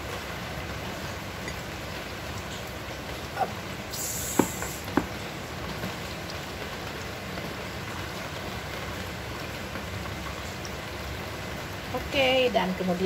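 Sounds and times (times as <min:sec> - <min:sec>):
steady background hiss: 0:00.0 - 0:13.0
plate knocking on table: 0:04.4 - 0:05.1.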